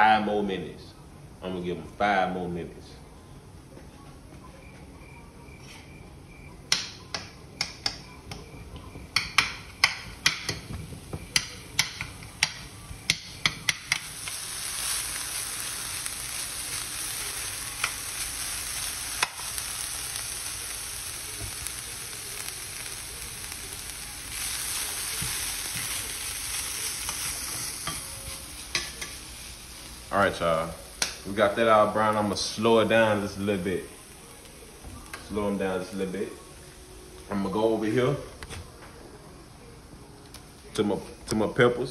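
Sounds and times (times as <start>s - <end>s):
metal spoon knocking on pan: 9.1s - 14.0s
meat sizzling in a pan: 9.2s - 36.6s.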